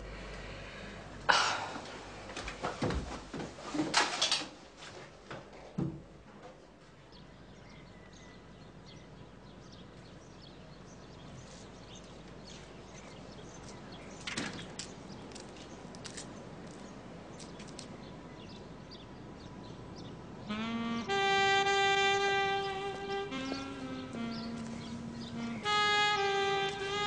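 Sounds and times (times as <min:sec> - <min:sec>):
birds chirping: 0:07.0 - 0:27.0.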